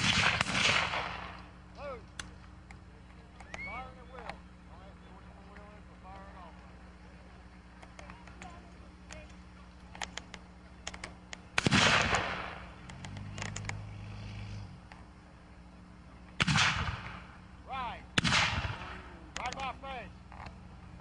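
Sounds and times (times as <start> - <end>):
distant gunshots cracking: 0.0 - 1.6, 10.9 - 13.7, 16.4 - 17.4, 18.1 - 19.1
musket shots with echo: 0.0 - 1.6, 11.5 - 12.8, 16.4 - 17.4, 18.2 - 19.1.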